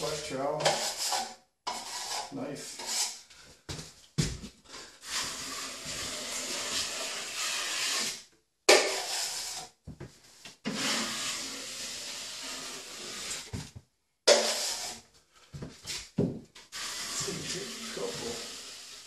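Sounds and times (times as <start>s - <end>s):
drywall knife scraping wall: 0.0s - 3.2s, 4.7s - 9.8s, 10.6s - 13.6s, 14.3s - 15.0s, 16.7s - 19.0s.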